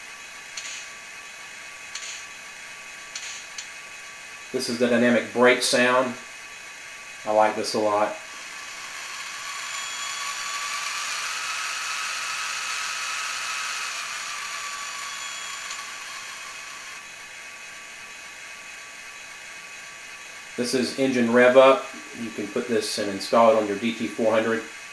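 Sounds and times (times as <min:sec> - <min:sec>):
hiss with faint whine from speaker: 0:00.0 - 0:08.4, 0:17.2 - 0:24.9.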